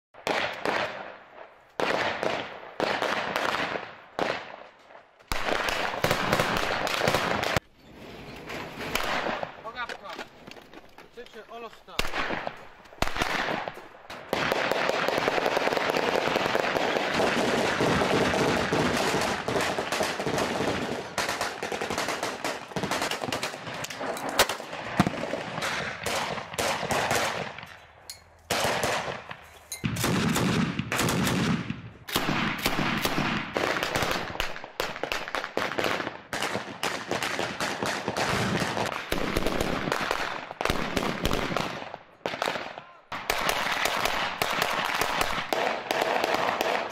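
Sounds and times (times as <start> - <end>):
rapid automatic gunfire: 14.3 - 23.7, 30.0 - 34.3.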